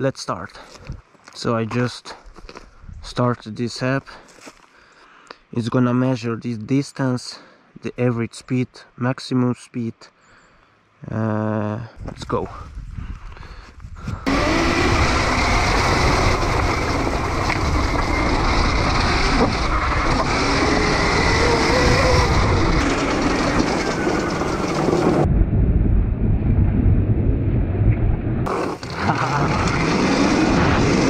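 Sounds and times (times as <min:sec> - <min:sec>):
tyres on gravel: 0:00.4 - 0:04.8, 0:12.0 - 0:25.2, 0:28.5 - 0:31.0
wind rush: 0:12.0 - 0:31.0
faint electric motor whine: 0:14.3 - 0:25.1.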